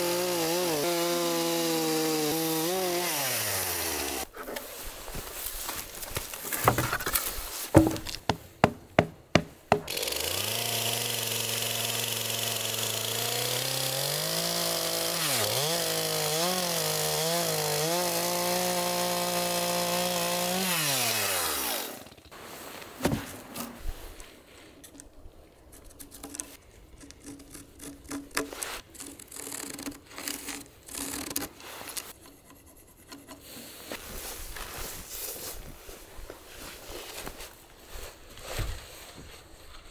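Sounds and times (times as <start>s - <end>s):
chainsaw cutting log: 0.0s - 4.3s, 7.7s - 22.3s
wooden knocks and scraping: 4.4s - 9.9s.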